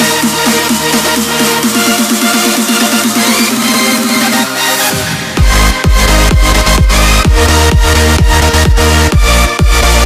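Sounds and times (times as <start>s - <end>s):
electronic dance music: 0.0s - 10.0s
deep bass and kick drum: 5.4s - 10.0s.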